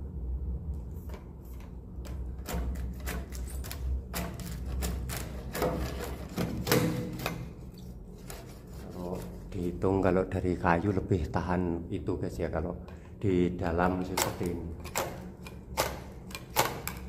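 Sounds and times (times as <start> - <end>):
tool scraping and clicking on wood: 1.0 - 9.8, 14.0 - 17.0.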